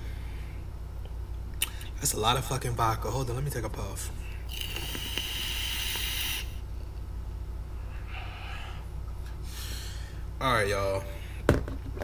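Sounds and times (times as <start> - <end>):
person inhaling smoke: 4.4 - 6.6, 7.9 - 10.2
person breathing out: 7.9 - 10.2.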